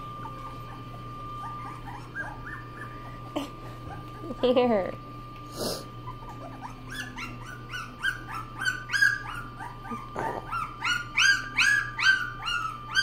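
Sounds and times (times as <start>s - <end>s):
puppy squealing: 0.1s - 4.4s, 6.0s - 13.0s.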